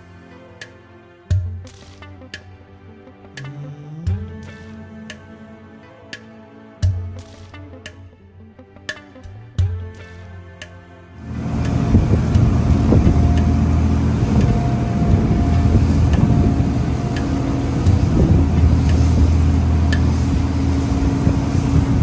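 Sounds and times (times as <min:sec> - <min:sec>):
boat engine humming: 0:11.2 - 0:22.0
water rushing: 0:11.2 - 0:22.0.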